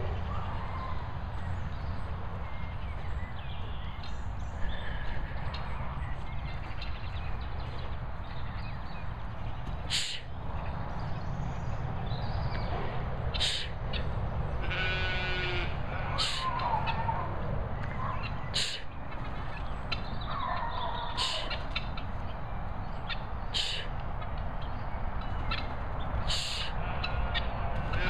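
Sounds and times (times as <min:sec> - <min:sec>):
guinea fowl calling: 0:18.0 - 0:22.2, 0:23.1 - 0:23.8.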